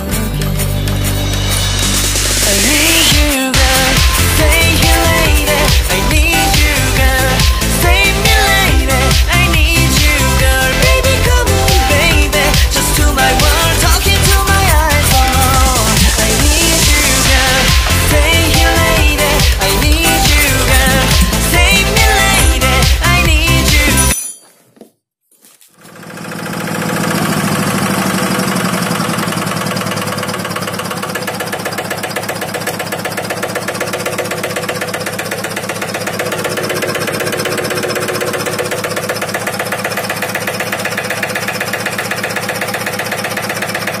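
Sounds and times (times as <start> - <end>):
diesel engine running: 0.0 - 24.1, 25.8 - 44.0.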